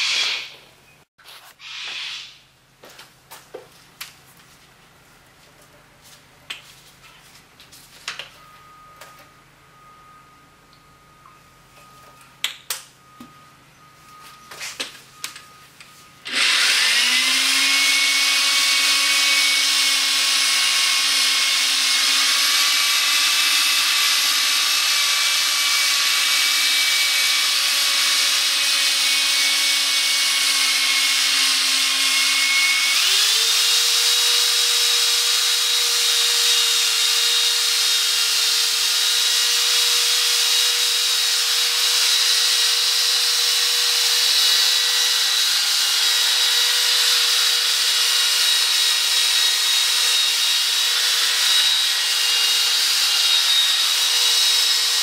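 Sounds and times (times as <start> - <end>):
electric drill motor whine: 16.2 - 55.0.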